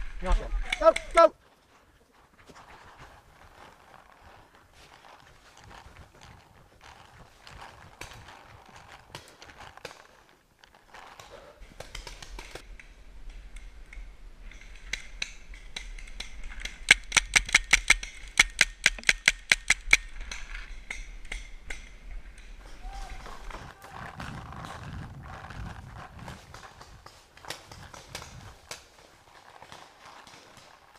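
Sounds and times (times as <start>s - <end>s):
rustling: 1.4s - 19.1s, 20.1s - 30.9s
paintball marker shots: 16.9s - 20.0s.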